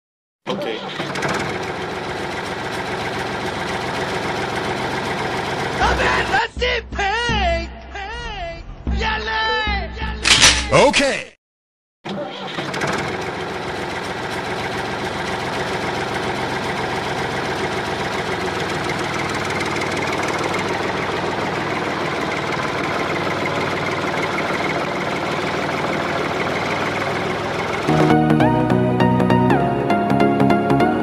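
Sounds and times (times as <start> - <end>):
diesel tractor engine idling: 0.6 - 7.4, 12.3 - 29.9.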